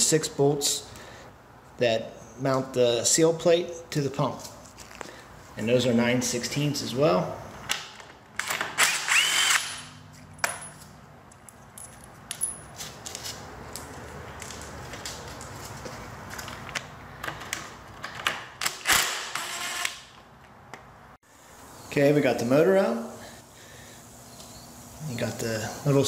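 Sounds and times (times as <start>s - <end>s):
impact driver whining: 8.5s - 10.0s
metal clinking: 10.3s - 12.9s.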